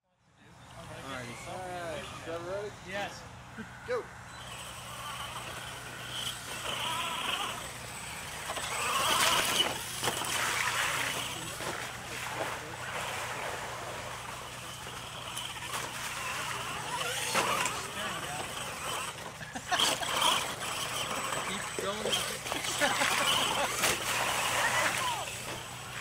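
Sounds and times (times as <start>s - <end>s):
toy truck motor whining: 0.6s - 26.0s
splashing through mud puddle: 6.6s - 26.0s.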